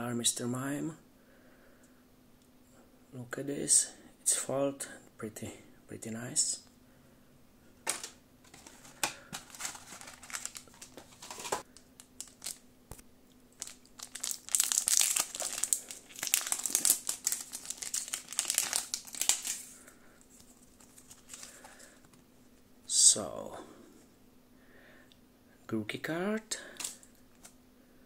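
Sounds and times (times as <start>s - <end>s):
foil wrapper crinkling and tearing: 8.5s - 12.6s, 13.5s - 21.9s, 26.8s - 27.6s.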